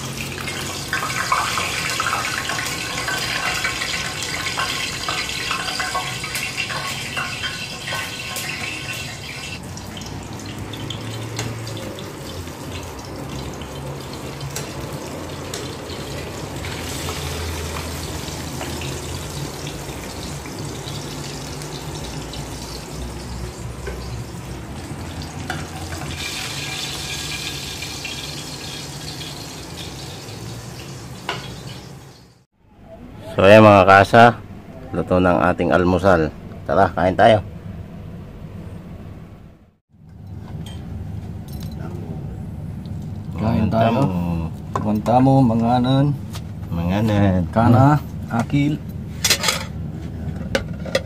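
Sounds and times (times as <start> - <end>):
fish sizzling in hot oil: 0.0 - 32.4.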